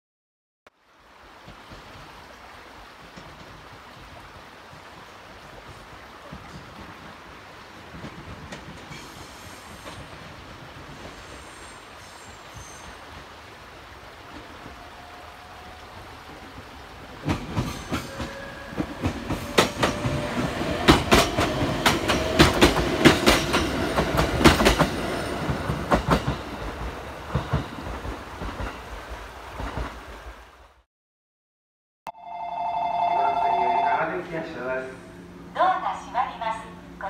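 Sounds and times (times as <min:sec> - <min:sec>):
train wheels clacking on rail joints: 0:07.9 - 0:10.2, 0:17.2 - 0:28.9.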